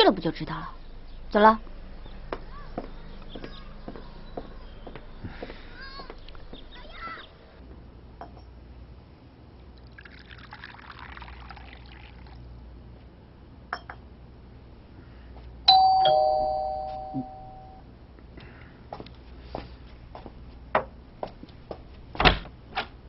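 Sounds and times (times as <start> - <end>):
soft rushing pouring noise: 9.8 - 12.5
two-note doorbell chime: 15.7 - 17.8.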